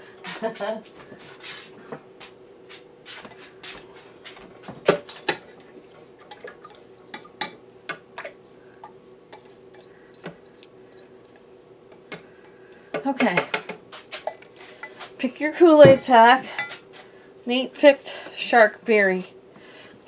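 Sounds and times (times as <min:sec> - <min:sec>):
kitchenware clinking and tapping: 0:04.9 - 0:08.3, 0:15.8 - 0:16.8.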